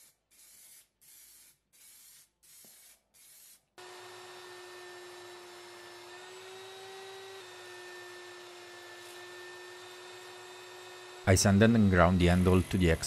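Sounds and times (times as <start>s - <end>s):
belt sander whining: 3.8s - 13.0s.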